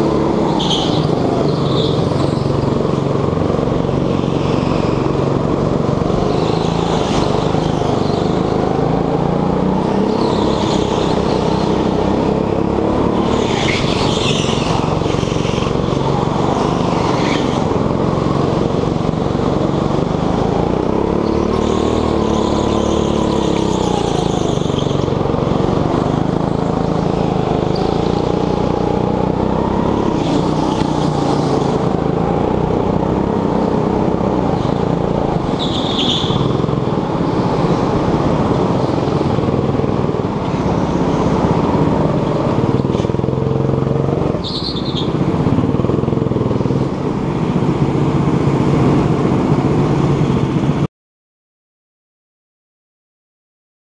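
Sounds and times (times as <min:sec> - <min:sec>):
go-kart engine running hard: 0:00.0 - 0:50.9
tyre squeal: 0:00.5 - 0:02.7, 0:13.3 - 0:17.7, 0:21.2 - 0:25.2, 0:35.4 - 0:36.6, 0:44.4 - 0:45.2.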